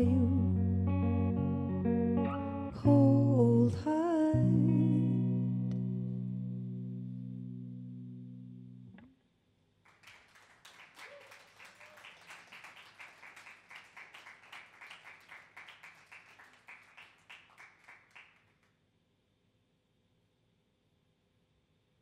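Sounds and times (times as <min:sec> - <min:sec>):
guitar chord through effects: 0:00.0 - 0:09.0
audience clapping: 0:09.9 - 0:18.7.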